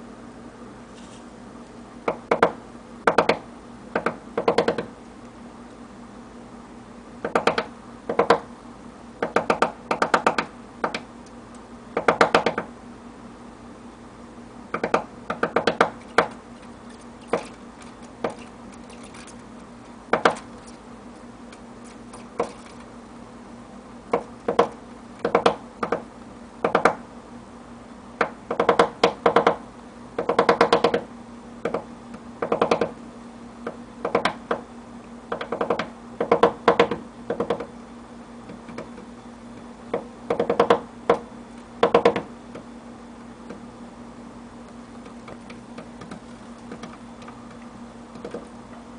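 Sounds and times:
woodpecker tapping on mud: 20.1 - 20.8.

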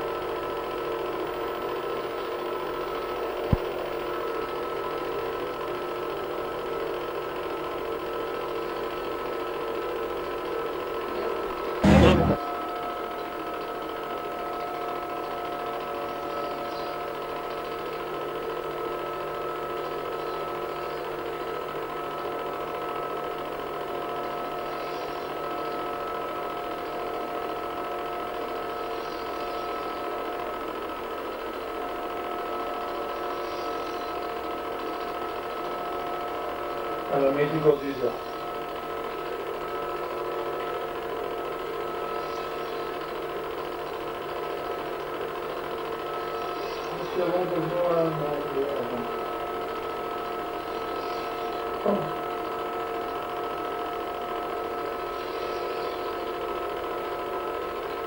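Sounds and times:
film projector whirring: 0.0 - 12.4, 13.2 - 58.0
humming tones: 11.8 - 12.4.

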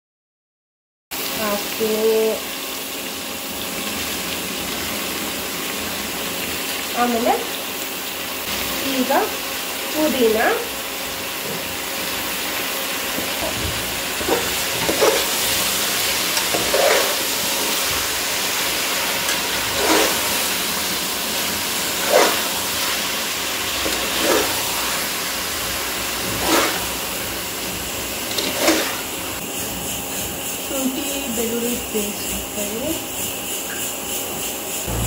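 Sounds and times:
food sizzling in a pot: 1.2 - 35.0
spatula scraping a pot: 14.2 - 30.6.

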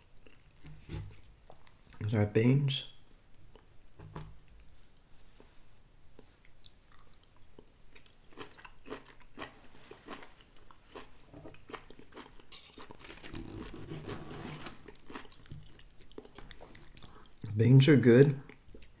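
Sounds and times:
chewing green beans: 3.3 - 5.5, 6.1 - 14.1, 14.7 - 17.5, 18.4 - 19.0.

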